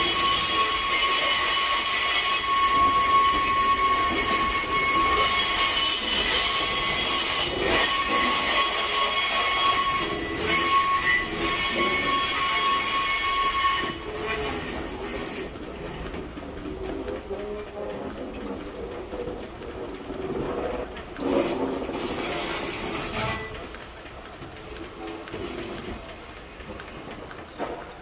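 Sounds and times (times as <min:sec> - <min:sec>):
train wheels squealing: 0:00.0 - 0:15.5, 0:21.3 - 0:28.0
wheels clacking over rail joints: 0:00.0 - 0:28.0.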